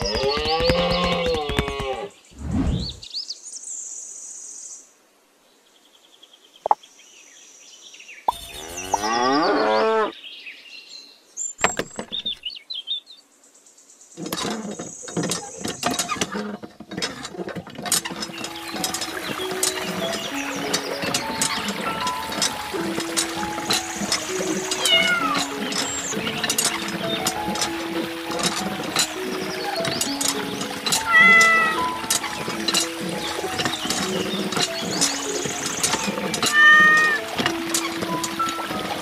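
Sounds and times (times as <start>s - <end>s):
cow mooing: 8.5s - 10.1s
water trickling from hand pump: 11.6s - 12.4s, 14.2s - 39.0s
music: 17.9s - 39.0s.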